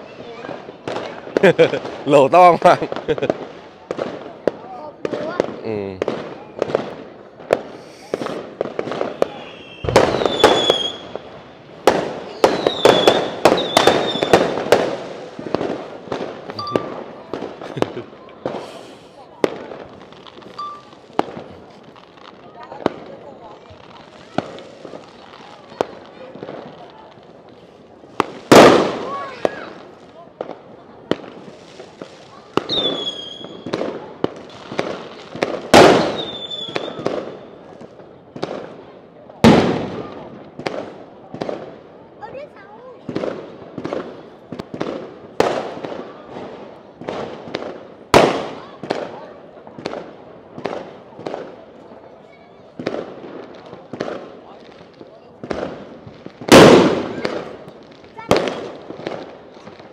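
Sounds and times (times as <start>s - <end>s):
fireworks whistling: 0.0s - 26.8s, 27.4s - 37.8s, 52.7s - 59.9s
fireworks bangs: 0.0s - 59.9s.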